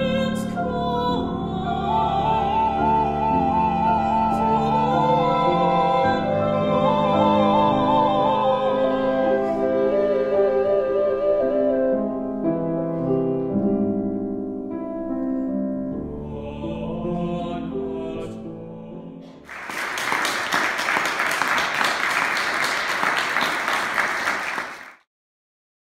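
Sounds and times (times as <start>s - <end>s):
ensemble of voices and instruments: 0.0s - 13.8s, 15.4s - 22.1s
audience applause: 19.5s - 25.0s.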